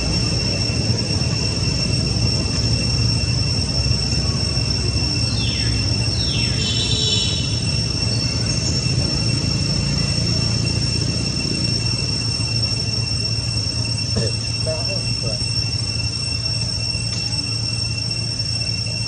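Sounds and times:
high chirps: 0.0s - 19.0s
high-pitched insect drone: 0.0s - 19.0s.

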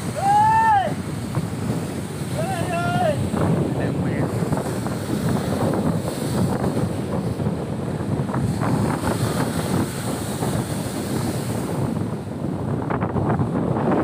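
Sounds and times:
waves breaking on rocks: 0.0s - 14.0s
wind buffeting microphone: 0.0s - 14.0s.

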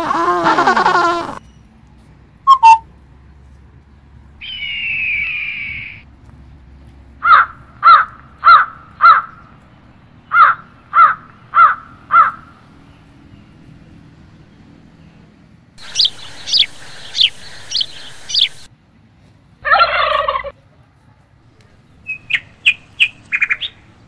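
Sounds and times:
harsh bird calls: 4.4s - 6.0s, 15.8s - 18.7s.

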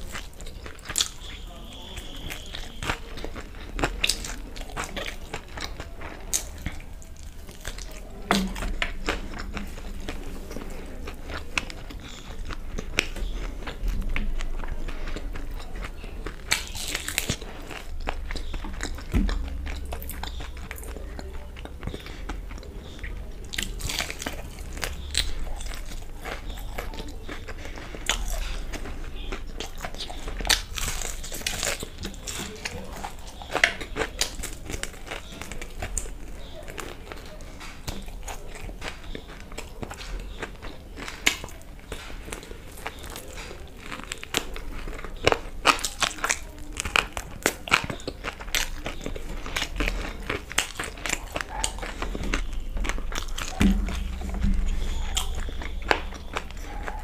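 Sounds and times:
crunchy biting and chewing: 0.0s - 57.0s.

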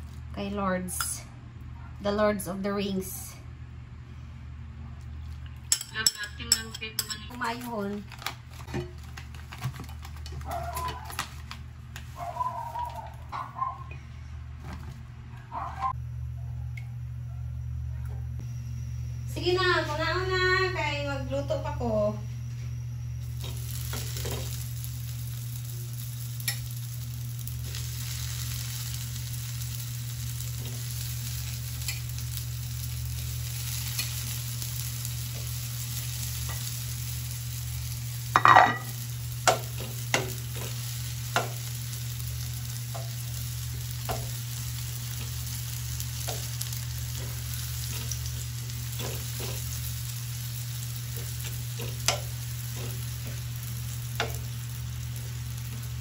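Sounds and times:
oil crackles and pops: 7.3s - 13.2s, 23.2s - 38.4s, 39.0s - 56.0s
food sizzling in hot oil: 23.2s - 56.0s.

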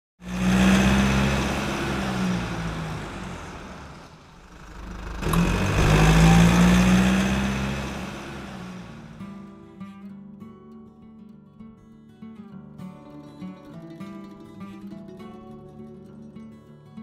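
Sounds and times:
car engine revving: 0.2s - 9.4s.

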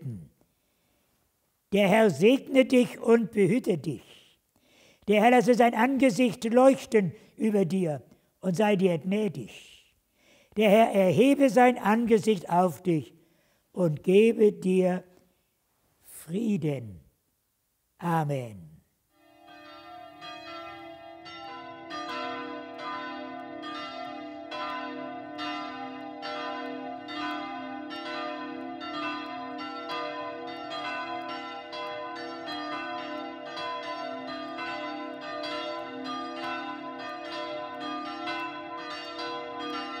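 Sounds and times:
church bells ringing: 10.6s - 13.0s, 19.2s - 40.0s.

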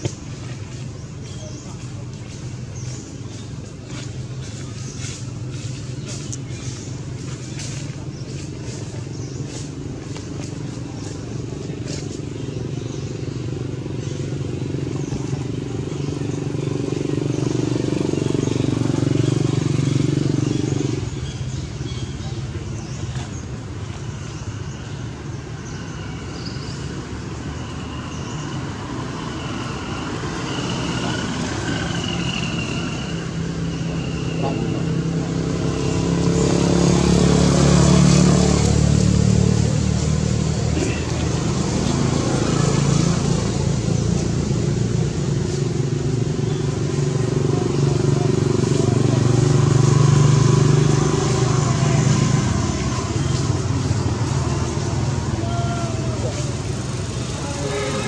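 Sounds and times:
low hum of traffic: 0.0s - 58.0s
motorcycle engine running: 31.0s - 58.0s.

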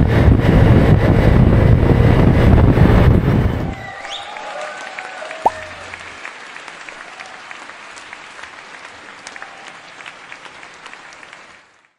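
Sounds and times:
many hands clapping: 4.0s - 11.9s.

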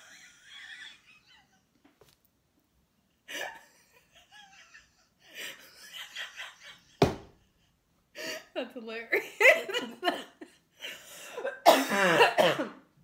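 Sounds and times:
woman laughing: 3.2s - 8.5s, 9.1s - 11.6s
loud thump: 7.0s - 7.4s.

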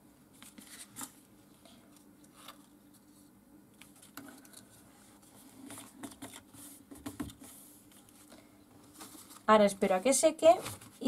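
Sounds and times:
paper card rustling and tapping: 5.6s - 9.5s.

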